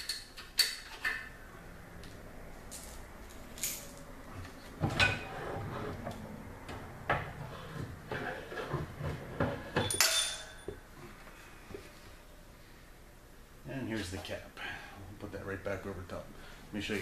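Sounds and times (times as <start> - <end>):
metal scraping: 3.6 - 6.3, 7.2 - 10.6
metal clunks and knocks: 4.8 - 10.8.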